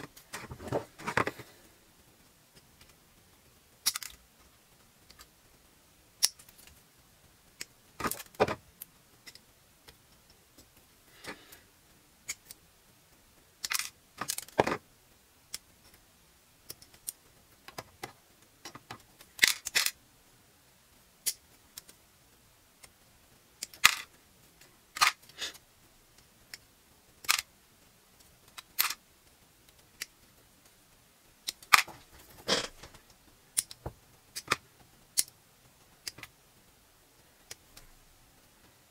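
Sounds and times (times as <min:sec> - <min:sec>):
plastic parts rattling: 0:00.0 - 0:01.5, 0:03.8 - 0:04.2, 0:08.0 - 0:08.6, 0:13.6 - 0:14.8, 0:17.7 - 0:20.0, 0:31.4 - 0:33.0.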